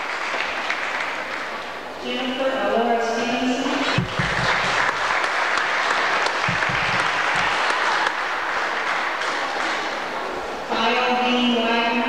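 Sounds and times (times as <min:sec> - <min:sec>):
audience applauding: 0:00.0 - 0:01.7, 0:03.7 - 0:10.5.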